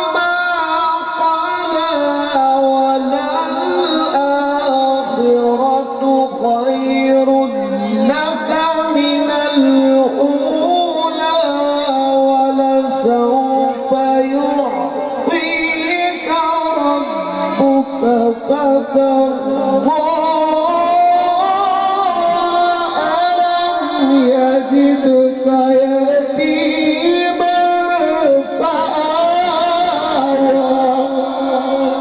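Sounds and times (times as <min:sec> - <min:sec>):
man reciting melodically: 0:00.0 - 0:32.0.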